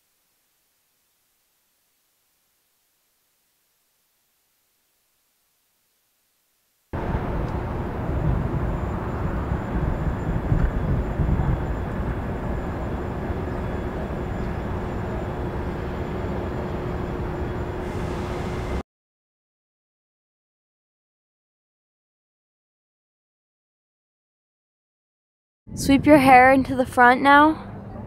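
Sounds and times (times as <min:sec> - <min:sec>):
traffic rumble: 0:07.0 - 0:18.8, 0:25.7 - 0:28.0.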